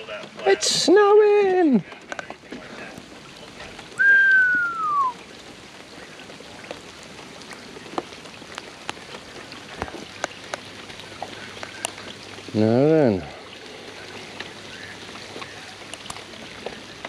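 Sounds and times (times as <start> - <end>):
rain pattering on water: 0.0 - 17.0
whistle gliding down: 4.0 - 5.2.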